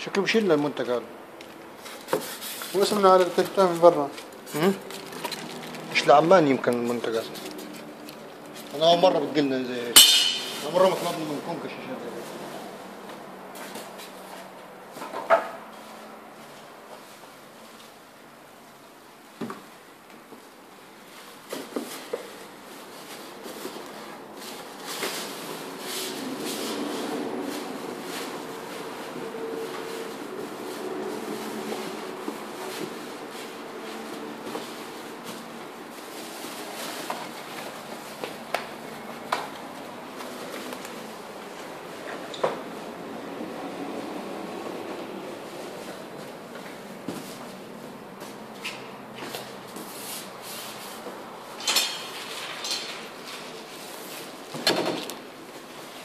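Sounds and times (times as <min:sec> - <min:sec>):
plastic wrapping rustling: 0:00.2 - 0:13.0, 0:21.0 - 0:43.0, 0:45.3 - 0:56.0
cardboard scrapes: 0:01.8 - 0:03.1, 0:22.0 - 0:38.1.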